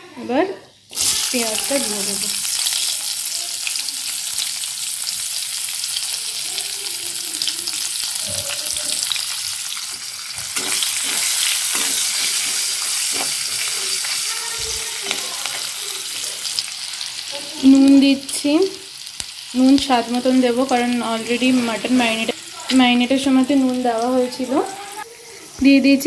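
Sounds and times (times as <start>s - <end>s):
onions sizzling in hot oil: 0.1s - 26.0s
spatula scraping and stirring: 8.8s - 16.6s, 20.9s - 22.8s.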